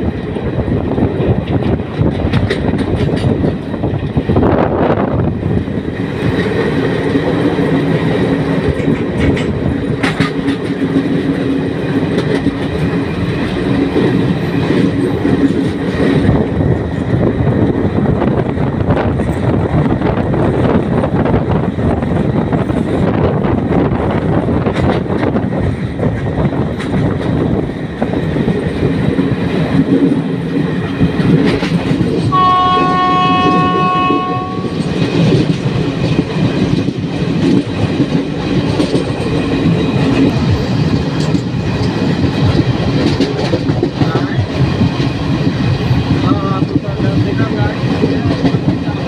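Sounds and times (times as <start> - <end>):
train rumbling along track: 0.0 - 49.0
train horn two-note blast: 32.3 - 34.8.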